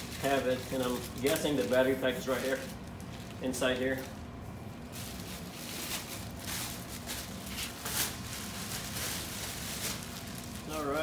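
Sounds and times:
plastic bags rustling: 0:00.0 - 0:11.0.

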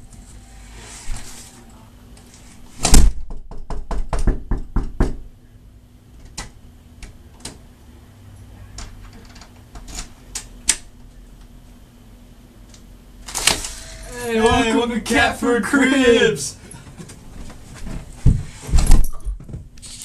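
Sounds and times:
loud bang on door: 0:02.8 - 0:05.2
knocking on a door: 0:03.1 - 0:05.3.

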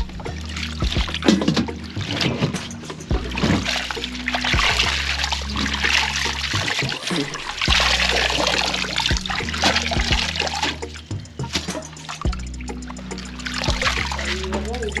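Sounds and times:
water splashing and trickling: 0:00.0 - 0:15.0
hands squeezing wet leaves: 0:00.1 - 0:15.0.

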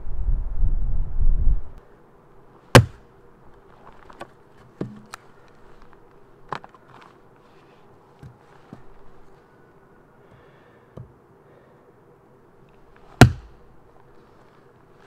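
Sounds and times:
hatchet chopping log: 0:02.7 - 0:03.0, 0:04.8 - 0:05.2, 0:13.2 - 0:13.5
light knocks of wood: 0:04.0 - 0:05.2.

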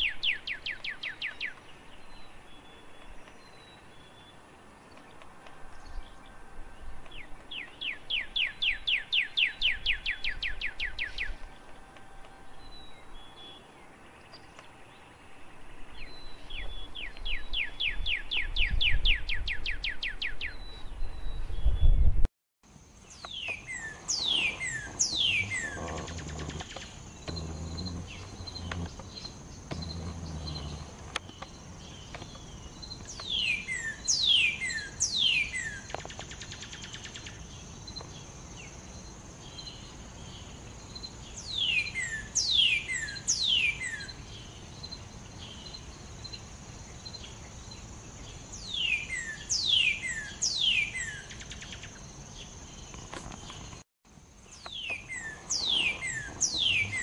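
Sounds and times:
bird singing falling whistles: 0:23.2 - 0:26.9, 0:54.7 - 0:57.0.

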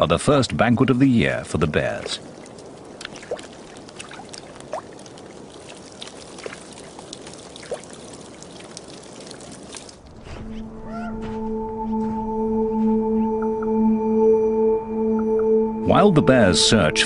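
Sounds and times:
water trickling and lapping: 0:00.0 - 0:11.5
wet clicks and plops: 0:02.0 - 0:10.1.

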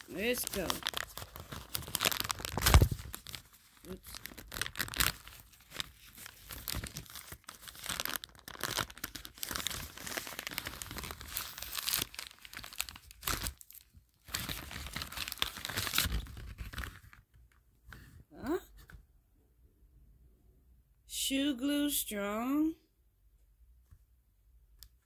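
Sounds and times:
plastic bag tearing and crinkling: 0:00.0 - 0:17.2.

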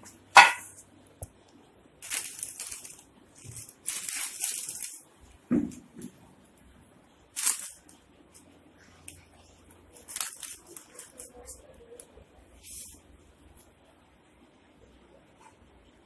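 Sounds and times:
plastic packet rustling and crinkling: 0:02.0 - 0:06.1, 0:07.3 - 0:13.0.

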